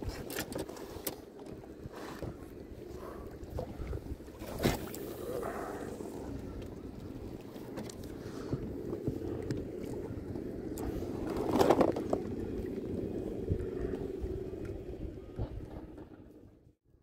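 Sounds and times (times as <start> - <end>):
water lapping against boat: 0.0 - 16.6
wind buffeting microphone: 8.2 - 16.3.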